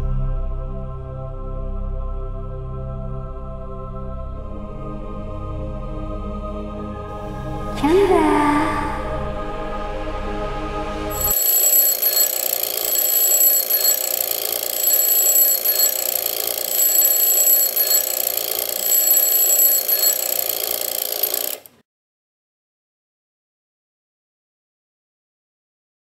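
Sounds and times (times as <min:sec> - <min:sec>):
alarm clock ringing: 0:11.1 - 0:21.7.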